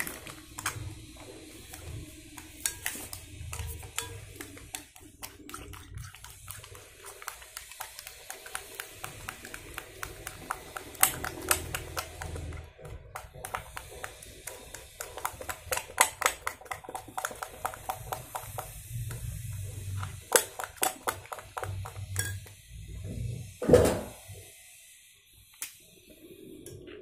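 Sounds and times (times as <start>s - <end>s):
spoon stirring wet slime: 0.0s - 22.6s
spoon clinking against glass bowl: 2.6s - 4.9s, 22.1s - 22.5s.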